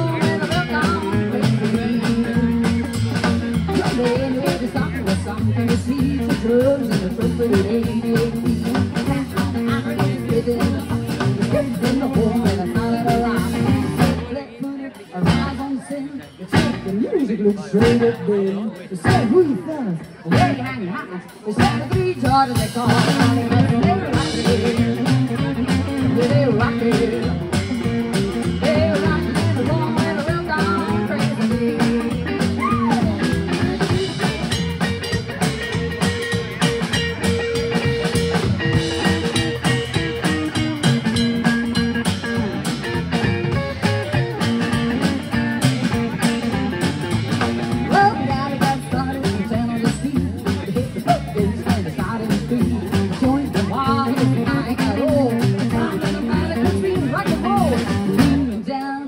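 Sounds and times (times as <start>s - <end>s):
woman singing: 0.0s - 2.9s, 3.7s - 34.6s, 47.8s - 59.0s
rock and roll band playing: 0.0s - 59.0s.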